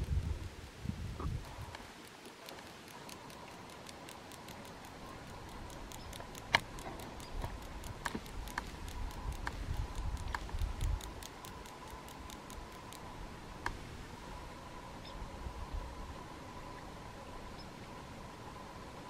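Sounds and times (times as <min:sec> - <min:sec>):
light ticks and clicks: 0:00.0 - 0:13.8.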